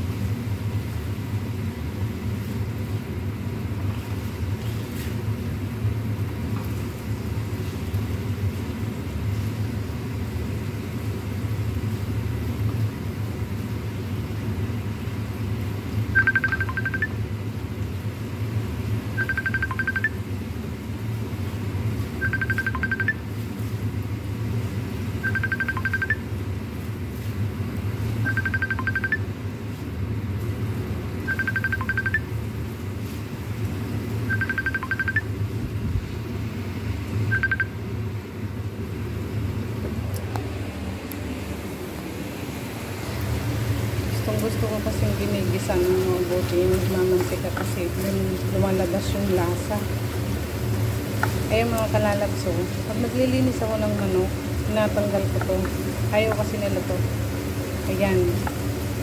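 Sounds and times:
range hood fan humming: 0.0s - 59.0s
phone ringing: 16.2s - 17.2s, 19.2s - 20.2s, 22.2s - 23.2s, 25.2s - 26.2s, 28.2s - 29.2s, 31.3s - 32.3s, 34.3s - 35.3s, 37.3s - 37.8s.

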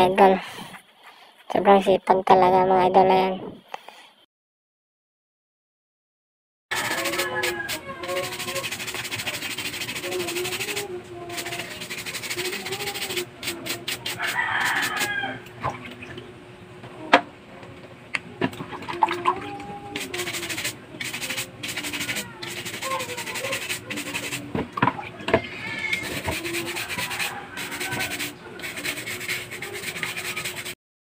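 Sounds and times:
brush scrubbing shells: 6.7s - 15.2s, 20.0s - 24.5s, 25.9s - 30.8s.

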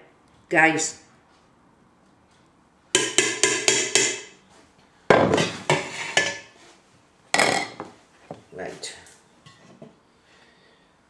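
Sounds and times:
metal spoon knocking on pan: 3.0s - 4.3s.

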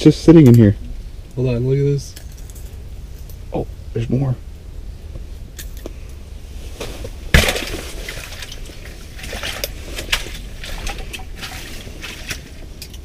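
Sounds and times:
steady low rumble: 0.0s - 13.0s
gear and clothing rustling: 5.9s - 13.0s.

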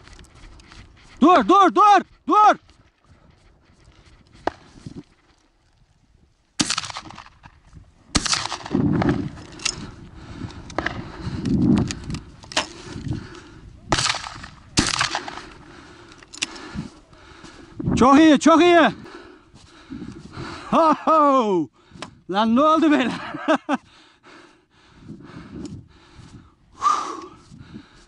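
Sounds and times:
shotgun shots: 6.6s - 7.5s, 8.1s - 9.3s, 13.9s - 15.5s.

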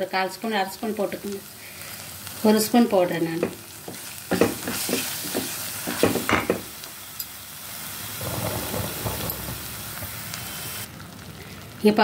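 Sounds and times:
paste sizzling in oil: 0.4s - 12.0s
wooden spatula scraping a pan: 8.2s - 10.3s.

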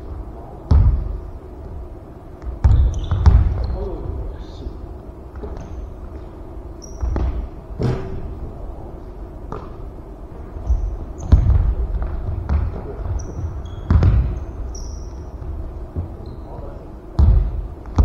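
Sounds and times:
basketball bouncing on wooden floor: 0.7s - 1.2s, 2.4s - 3.8s, 6.9s - 8.1s, 10.6s - 16.1s, 17.2s - 18.0s
sneakers squeaking on hardwood: 2.4s - 3.9s, 5.3s - 8.2s, 10.6s - 18.0s.

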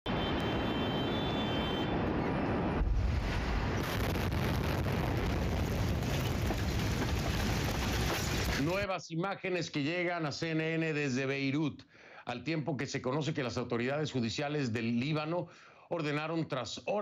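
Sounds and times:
blast roar: 1.8s - 8.6s
deep explosion boom: 1.9s - 8.8s.

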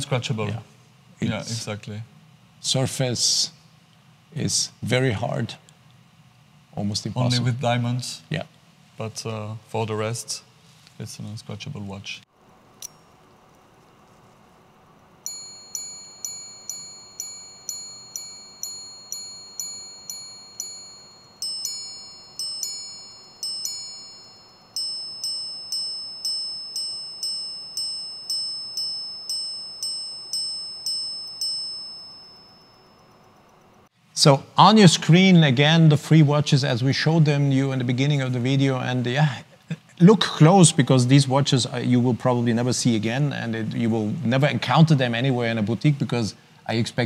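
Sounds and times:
watch chimes on gongs: 15.3s - 33.4s.

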